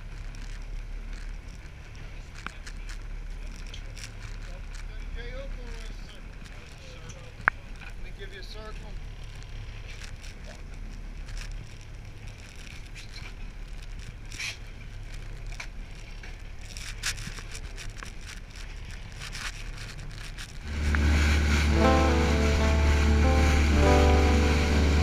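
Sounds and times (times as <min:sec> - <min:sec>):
small clicks and rustles: 0:00.0 - 0:20.7
low boat hum: 0:09.1 - 0:25.0
music with heavy bass: 0:20.7 - 0:25.0.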